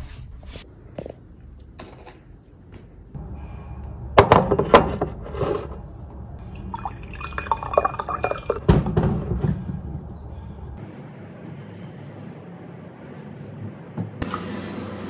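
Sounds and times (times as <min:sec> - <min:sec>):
water pouring and dripping: 0:06.4 - 0:08.7.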